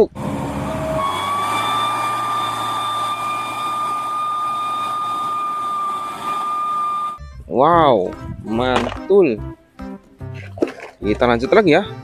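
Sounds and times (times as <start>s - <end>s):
high-pitched whine: 0.0s - 7.2s
truck engine under load: 0.0s - 7.2s.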